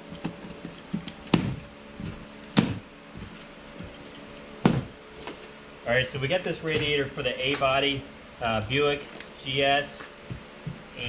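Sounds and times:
faint fan hum: 0.0 - 11.0
knocks on cardboard box: 0.2 - 2.9, 4.6 - 4.9.

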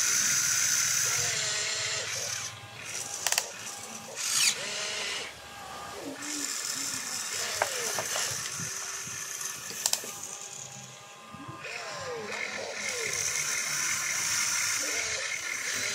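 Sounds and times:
toy motors buzzing with gear chatter: 0.0 - 15.9
sharp clicks: 2.9 - 4.6, 9.7 - 10.2.

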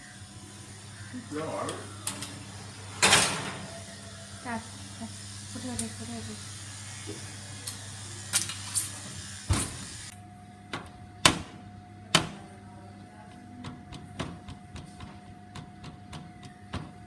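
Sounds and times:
hiss: 5.5 - 10.1.

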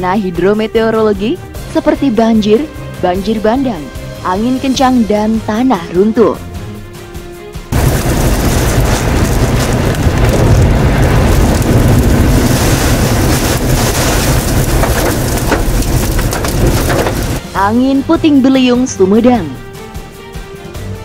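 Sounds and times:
floodwater rushing: 7.8 - 17.4.

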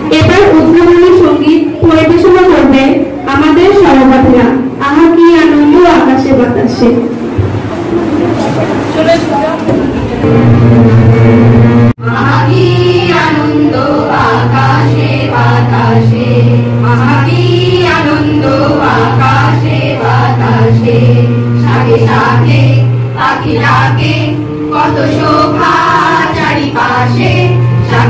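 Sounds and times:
harmonium drone: 10.0 - 28.0
women and girls singing together: 12.0 - 28.0.

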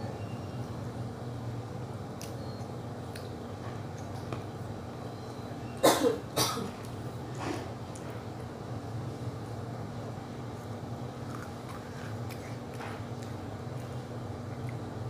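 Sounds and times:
girl coughing: 5.8 - 6.8.

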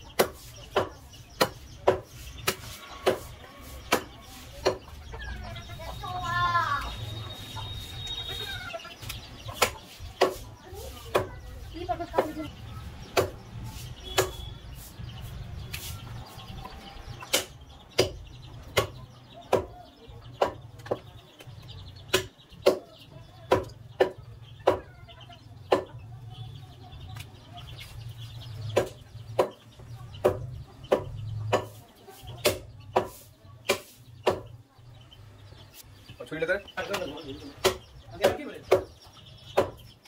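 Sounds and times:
cleaver chopping meat on wood: 0.1 - 3.3, 3.9 - 4.9, 9.6 - 10.4, 11.1 - 11.4, 13.1 - 13.5, 14.1 - 14.4, 17.2 - 19.8, 20.4 - 21.1, 22.1 - 24.9, 25.7 - 26.0, 28.7 - 31.8, 32.4 - 34.6, 37.6 - 39.9.

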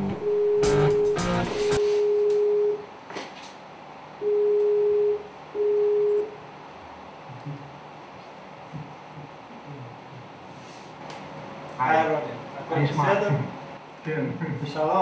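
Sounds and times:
guitar music: 0.0 - 2.0
video-call beeps: 0.0 - 2.8, 4.2 - 6.3.

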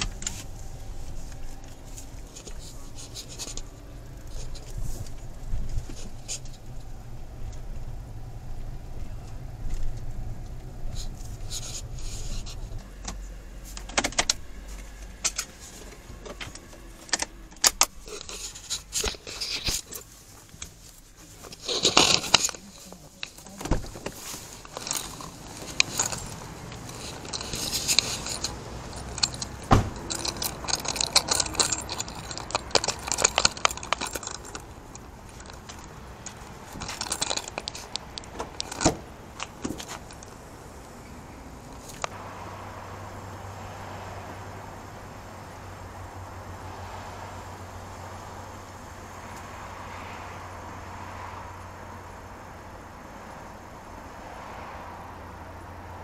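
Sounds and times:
small metal tools clinking: 21.5 - 40.4.

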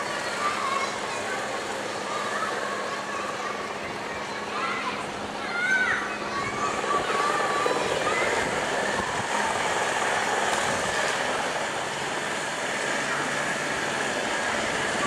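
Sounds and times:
helicopter flying overhead: 0.0 - 15.0.

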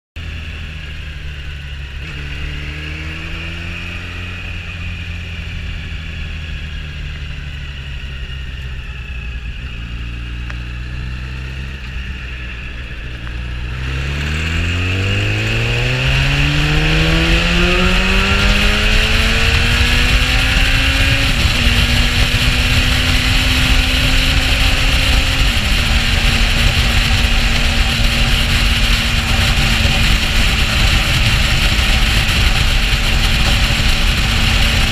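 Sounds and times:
motorcycle engine accelerating: 0.2 - 34.9
wind rushing over microphone: 10.7 - 34.9.

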